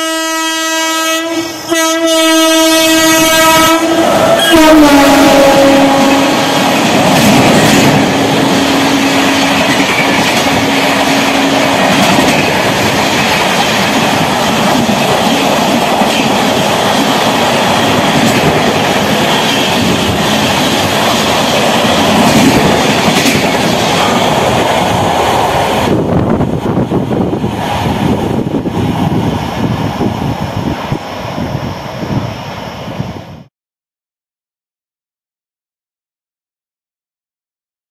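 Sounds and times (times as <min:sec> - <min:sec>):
train horn: 0:00.0 - 0:06.8, 0:10.4 - 0:11.9
train wheels rushing on rail: 0:00.0 - 0:33.5.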